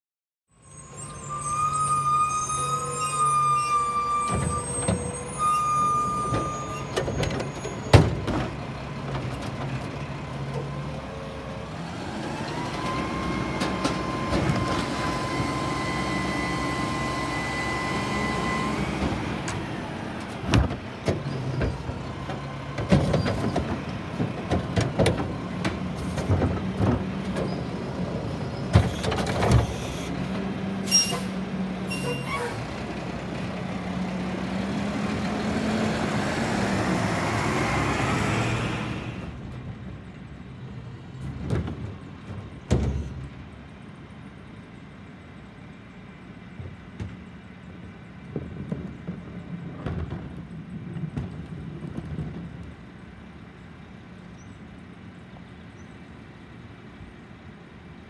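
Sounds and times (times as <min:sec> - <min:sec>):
hydraulic whine: 0:00.6 - 0:08.1, 0:11.8 - 0:19.8
garbage truck running: 0:00.6 - 0:58.0
carts clunking and banging: 0:02.7 - 0:10.9, 0:19.0 - 0:31.3, 0:46.6 - 0:52.9.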